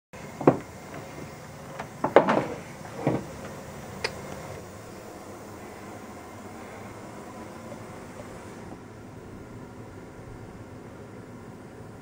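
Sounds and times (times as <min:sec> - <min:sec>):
low background noise: 0:00.2 - 0:12.0
sharp knocks and clunks: 0:00.3 - 0:04.4.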